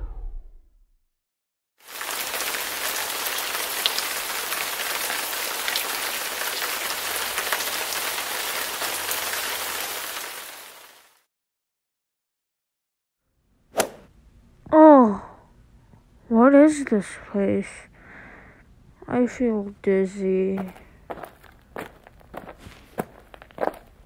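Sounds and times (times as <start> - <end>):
fire crackling: 1.8 - 11.0.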